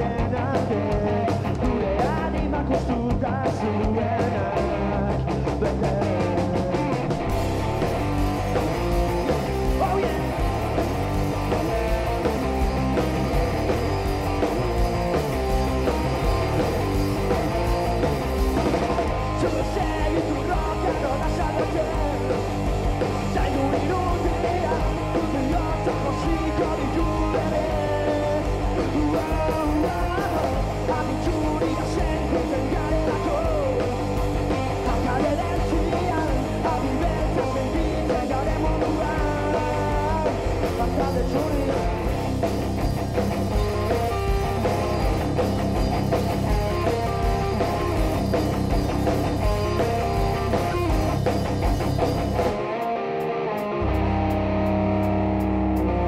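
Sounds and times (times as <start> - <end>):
person singing: 0.0 - 7.2, 9.6 - 10.8, 19.2 - 22.5, 23.1 - 42.1
distorted electric guitar: 0.0 - 56.0
live rock band playing: 0.0 - 56.0.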